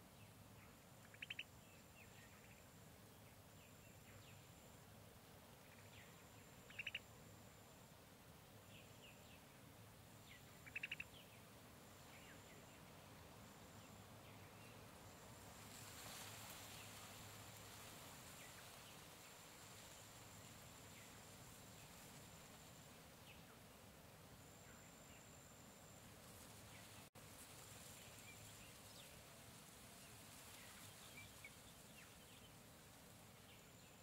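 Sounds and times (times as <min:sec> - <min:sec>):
rustling hiss: 0:00.0 - 0:34.0
faint high insect buzz: 0:00.1 - 0:34.0
soft chirps: 0:00.2 - 0:02.8, 0:05.7 - 0:07.7, 0:10.4 - 0:11.4
bird calling: 0:01.0 - 0:01.5, 0:06.6 - 0:07.0, 0:10.6 - 0:11.2.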